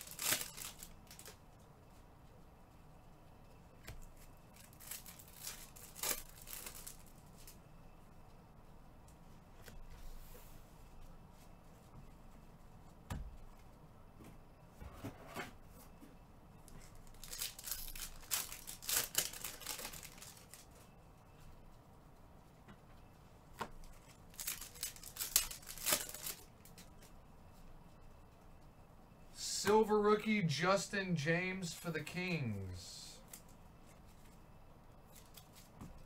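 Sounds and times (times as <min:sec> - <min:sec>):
card pack wrappers tearing and crinkling: 0:00.0 - 0:01.4, 0:04.6 - 0:07.2, 0:17.0 - 0:20.7, 0:23.9 - 0:26.9.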